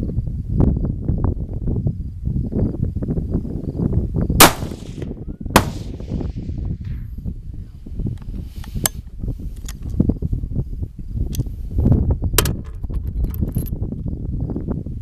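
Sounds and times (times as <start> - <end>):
steady low rumble: 0.0 - 12.4
rifle shots with echo: 4.4 - 6.2.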